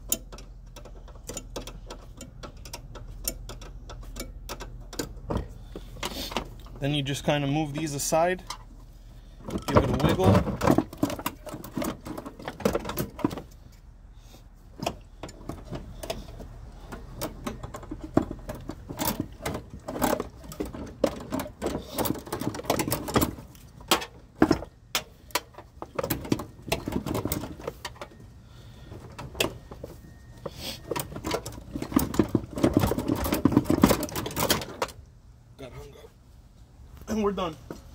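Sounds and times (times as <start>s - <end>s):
plastic and metal clicks and rattles: 0.0s - 6.7s, 31.0s - 35.0s.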